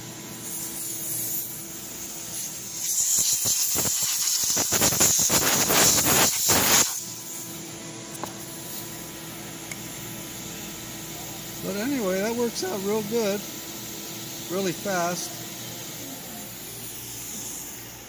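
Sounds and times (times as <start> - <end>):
coolant spray hissing: 0.0 - 7.6, 9.8 - 18.0.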